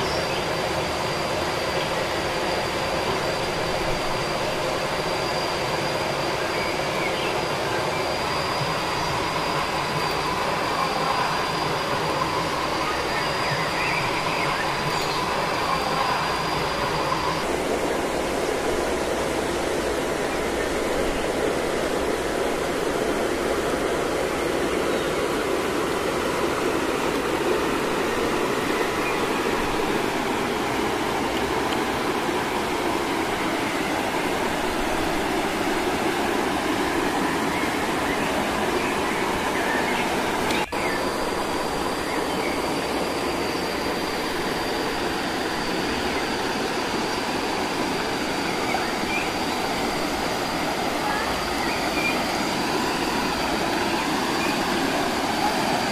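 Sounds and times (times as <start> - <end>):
thin high whine: 0.0 - 55.9.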